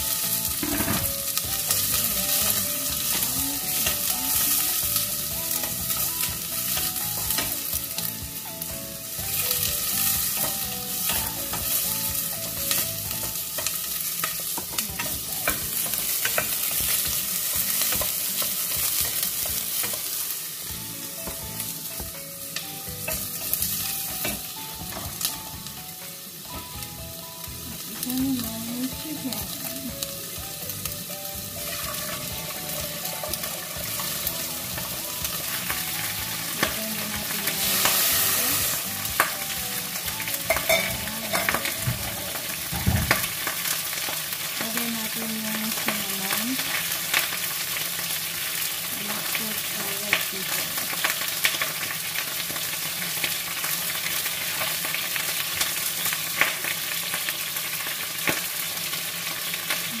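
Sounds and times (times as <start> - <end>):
chicken sizzling in oil: 0.0 - 60.0.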